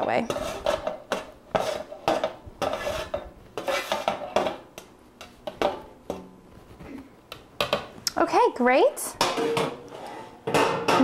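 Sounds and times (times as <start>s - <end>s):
spatula scraping a metal baking sheet: 0.0s - 4.6s, 9.2s - 10.8s.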